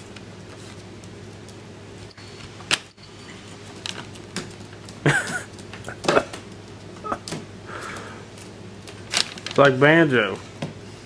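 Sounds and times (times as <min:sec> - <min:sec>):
plastic bag crinkling: 0:08.9 - 0:10.0.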